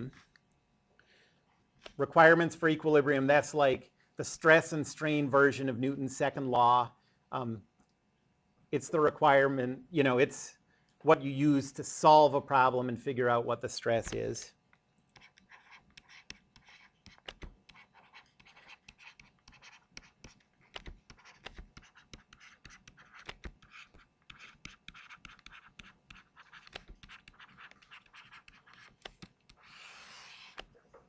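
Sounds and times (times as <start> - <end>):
stylus tapping and scratching on screen: 13.9 - 31.0.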